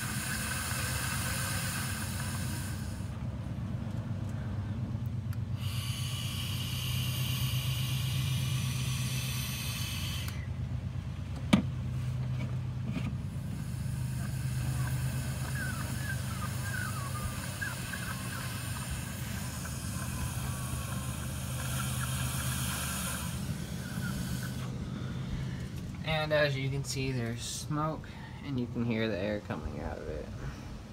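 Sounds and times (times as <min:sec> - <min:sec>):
air hissing from vacuum leak: 0:00.0 - 0:03.2, 0:05.5 - 0:10.5, 0:13.2 - 0:25.9
steady low hum: 0:00.0 - 0:30.9.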